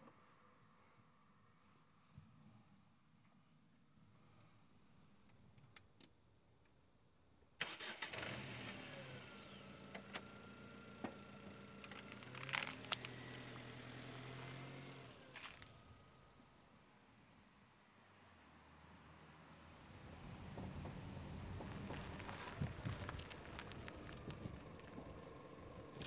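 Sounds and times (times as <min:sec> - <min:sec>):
engine starting and running: 0:07.6 - 0:16.2.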